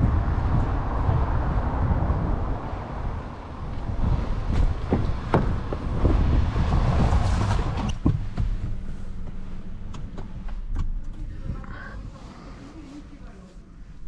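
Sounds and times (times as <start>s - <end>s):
wind rumbling on microphone: 0.0s - 12.6s
knocks: 4.5s - 6.2s.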